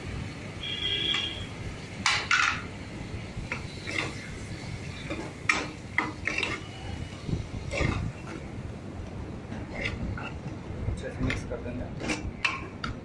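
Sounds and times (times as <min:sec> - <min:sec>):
metal ladle scraping pot: 0:03.5 - 0:08.5, 0:09.5 - 0:10.5, 0:11.3 - 0:13.0.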